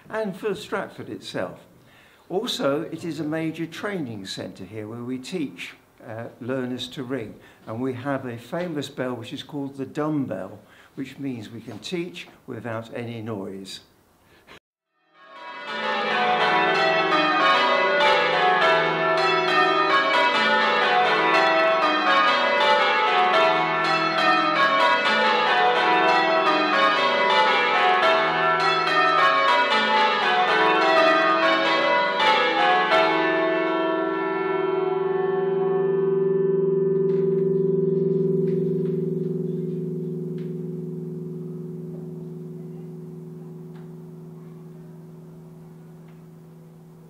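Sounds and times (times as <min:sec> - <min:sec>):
church bells ringing: 0:15.1 - 0:47.0
lingering bell hum: 0:15.4 - 0:47.0.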